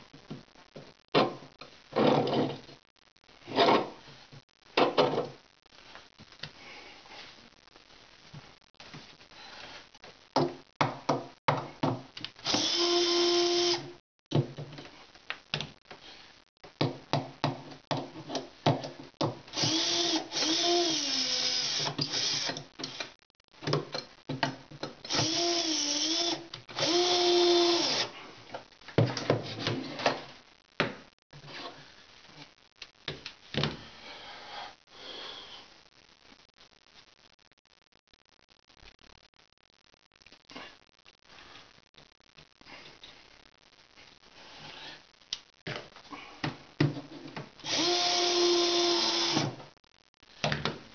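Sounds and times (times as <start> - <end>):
cordless drill driving screws: 12.4 - 13.8, 19.6 - 22.6, 25.1 - 28.1, 47.6 - 49.5.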